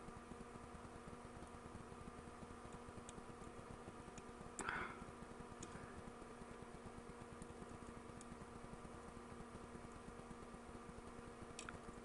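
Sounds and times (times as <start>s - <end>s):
faint electrical hum: 0.0s - 12.0s
soldering click and crackling hiss: 0.0s - 12.0s
light ticks: 2.4s - 5.8s, 6.6s - 8.4s, 11.0s - 12.0s.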